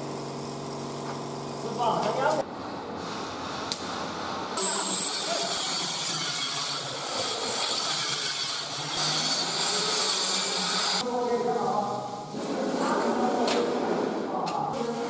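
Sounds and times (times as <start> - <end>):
hissing machine noise: 4.5 - 11.0.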